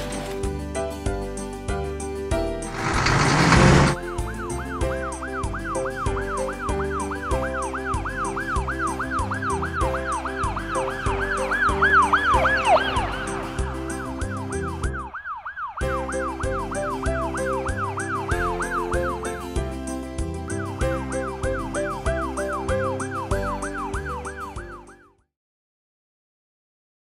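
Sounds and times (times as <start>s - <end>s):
background music with steady beat: 0.6s - 25.0s
loud burst of noise: 2.7s - 4.0s
cartoon siren wail: 4.4s - 13.2s, 14.0s - 18.9s, 21.2s - 25.0s.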